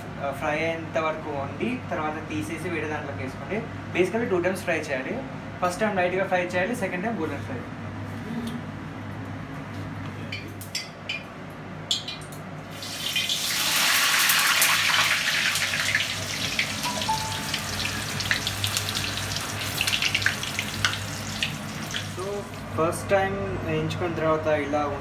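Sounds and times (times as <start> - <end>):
fries sizzling in hot oil: 12.7 - 22.7.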